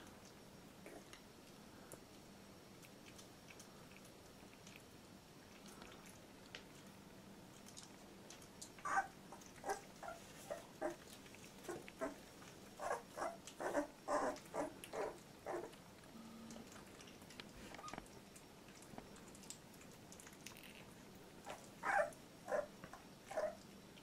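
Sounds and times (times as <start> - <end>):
puppy whimpering: 8.8 - 11.0, 11.6 - 12.2, 12.8 - 15.8, 21.4 - 23.6.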